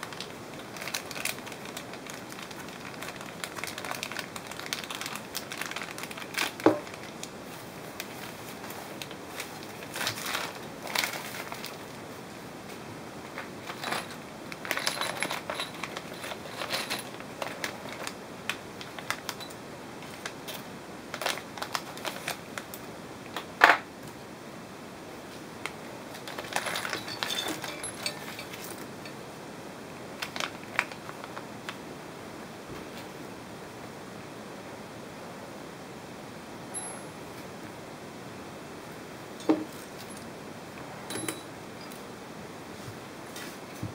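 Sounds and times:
plastic bags crinkling: 0.0s - 12.0s, 13.4s - 22.8s, 26.1s - 29.2s, 30.2s - 31.4s
small hardware clattering on table: 41.1s - 41.5s.

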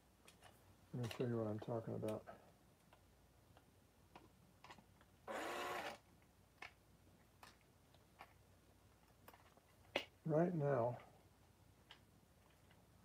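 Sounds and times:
cordless drill burst: 5.3s - 6.0s.

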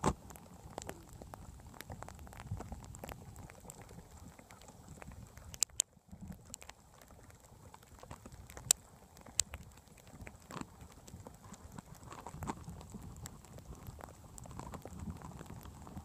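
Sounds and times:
patter of dog paws on snow: 0.0s - 16.0s
sharp clicks: 5.0s - 6.8s.

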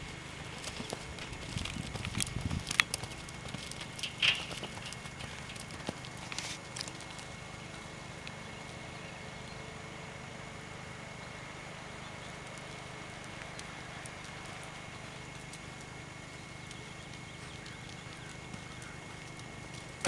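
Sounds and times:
horse hoofbeats on sand: 0.0s - 7.5s, 12.7s - 20.0s.

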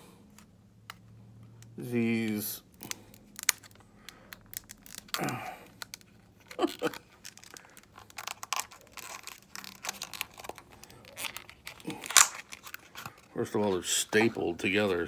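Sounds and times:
packaging crinkling and tearing: 2.7s - 14.6s.

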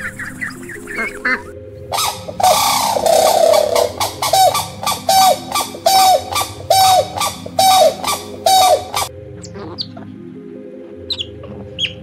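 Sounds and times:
crane calling: 0.0s - 9.1s.

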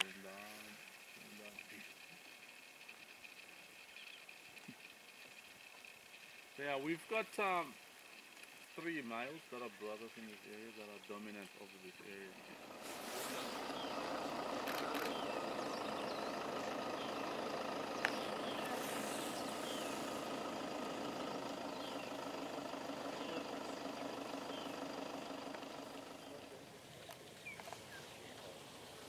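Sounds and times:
vehicle engine idling: 0.0s - 29.0s
faint high chirps: 9.7s - 25.0s.

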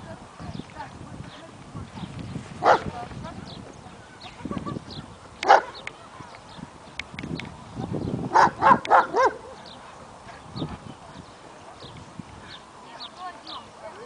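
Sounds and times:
dog barking: 2.6s - 2.9s, 5.4s - 5.8s, 8.3s - 9.6s.

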